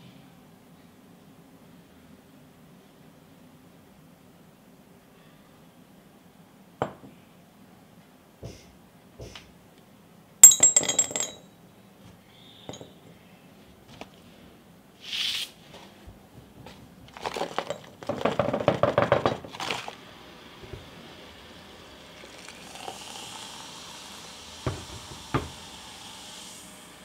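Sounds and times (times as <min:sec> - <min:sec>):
sharp glass clinks: 0:10.4 - 0:11.5
powder rattling into glass jar: 0:17.1 - 0:20.0
liquid pouring into jar: 0:19.5 - 0:25.6.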